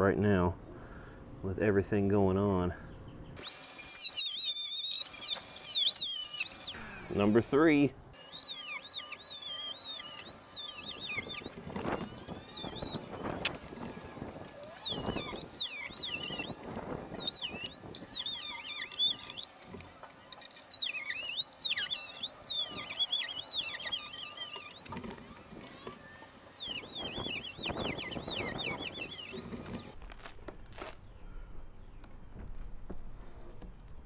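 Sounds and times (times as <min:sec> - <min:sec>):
cutting wheel squeal: 0:03.4 - 0:30.0
rotary tool whine: 0:03.4 - 0:33.7.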